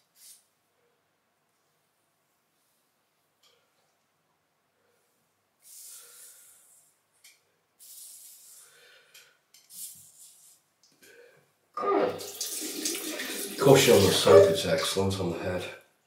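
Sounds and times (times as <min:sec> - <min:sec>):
water running into sink: 0:12.2 - 0:14.6.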